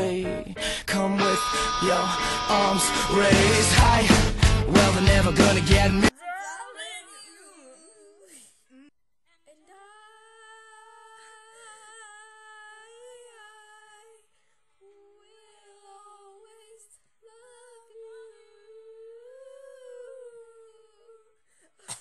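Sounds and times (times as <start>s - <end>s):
girls humming a sad melody: 14.8s - 21.4s.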